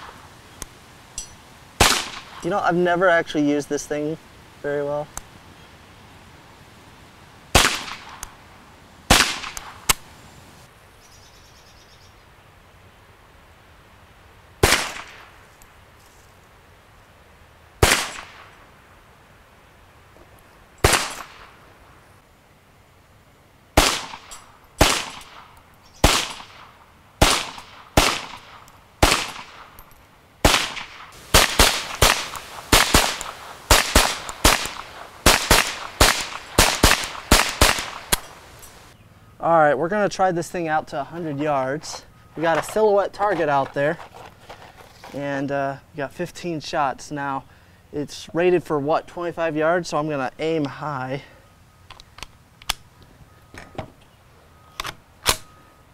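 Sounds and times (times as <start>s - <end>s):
pistol shots with echo: 1.8s - 2.4s, 7.6s - 8.2s, 9.1s - 10.0s, 17.8s - 18.5s, 23.8s - 29.7s, 30.4s - 38.3s.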